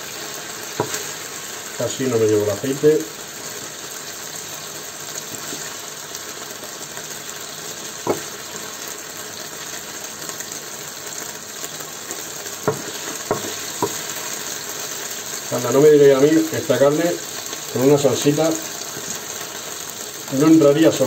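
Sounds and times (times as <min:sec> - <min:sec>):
meat sizzling in a frying pan: 0:00.0 - 0:21.0
wooden spatula knocks: 0:00.8 - 0:01.0, 0:08.0 - 0:08.3, 0:12.6 - 0:14.0.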